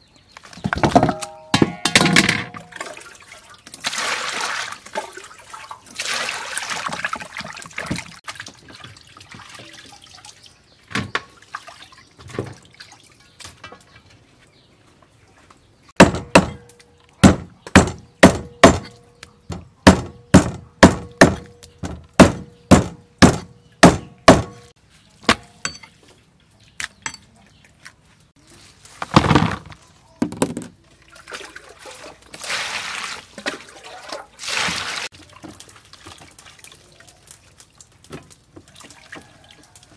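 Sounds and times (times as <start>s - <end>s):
water splashing: 2.5s - 13.4s, 30.9s - 39.9s
cleaver chopping on wooden block: 16.0s - 24.6s.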